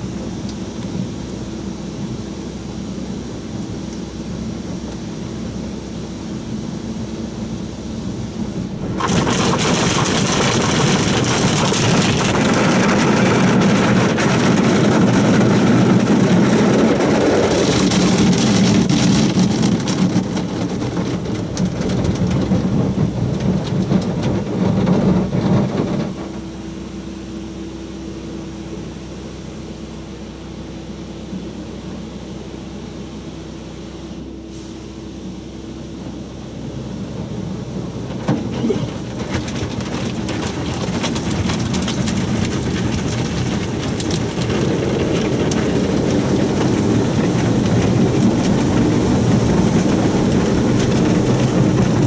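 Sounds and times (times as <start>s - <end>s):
low steady hum: 0.0s - 52.0s
car wash brushes scrubbing: 8.8s - 25.5s, 38.2s - 52.0s.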